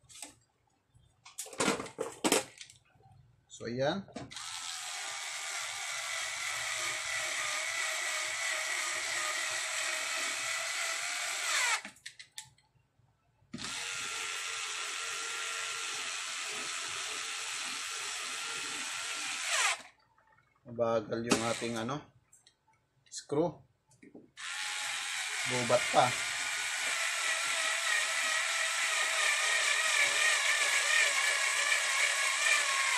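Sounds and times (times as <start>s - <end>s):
electric screwdriver whining: 4.3s - 12.0s, 13.6s - 19.9s, 21.3s - 21.8s, 24.4s - 32.9s.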